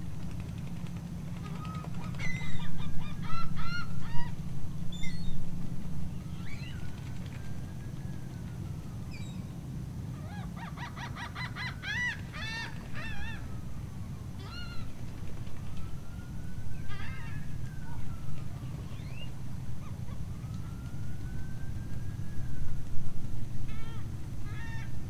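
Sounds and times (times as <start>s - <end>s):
waterbirds calling: 1.4s - 5.4s.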